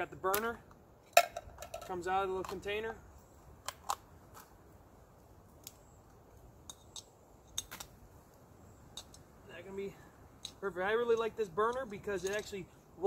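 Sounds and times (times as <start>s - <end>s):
small parts clicking and tapping: 11.2s - 12.6s.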